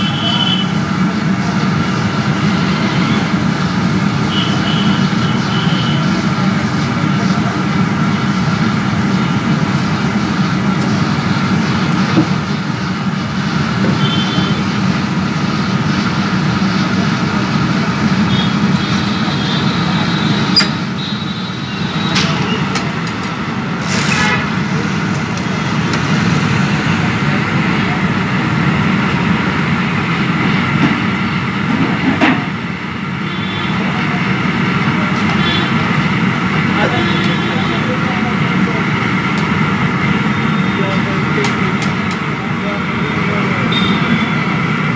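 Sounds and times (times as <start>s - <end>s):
roar of stove fire: 22.3s - 27.6s.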